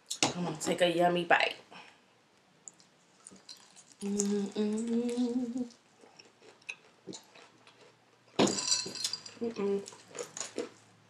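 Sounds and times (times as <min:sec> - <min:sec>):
person chewing crunchy food: 0:02.7 - 0:08.4, 0:09.1 - 0:10.9
person humming mmm: 0:04.0 - 0:05.8, 0:09.4 - 0:09.9.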